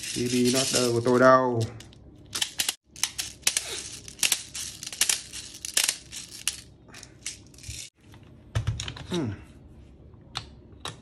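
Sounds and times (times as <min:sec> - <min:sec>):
bbs rattling: 0:00.0 - 0:08.0.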